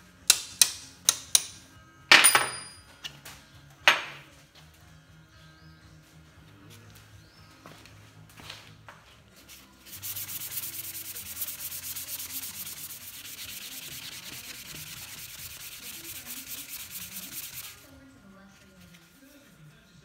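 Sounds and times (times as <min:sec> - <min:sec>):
sandpaper rubbing on wood: 0:09.4 - 0:17.9.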